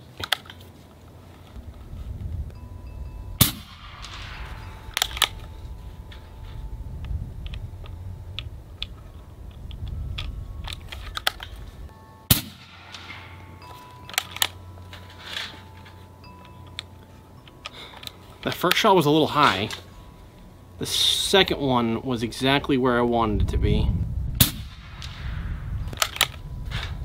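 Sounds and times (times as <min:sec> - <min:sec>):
air rifle shot cracking: 0:03.4 - 0:05.3, 0:12.3 - 0:13.3, 0:24.4 - 0:26.3.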